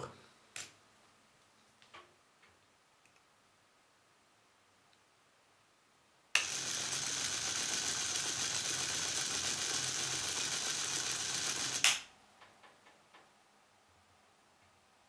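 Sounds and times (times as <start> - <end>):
small motor whirring with gear clatter: 6.4 - 12.0.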